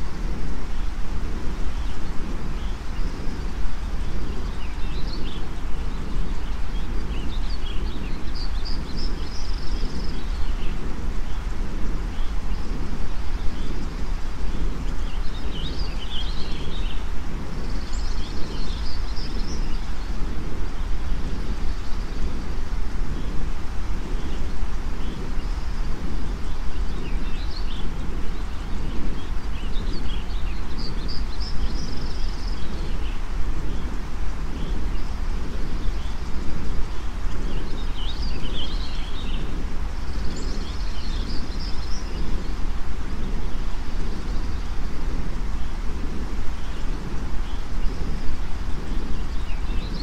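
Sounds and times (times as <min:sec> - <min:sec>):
birds chirping: 0:00.0 - 0:50.0
steady rushing white noise: 0:00.0 - 0:50.0.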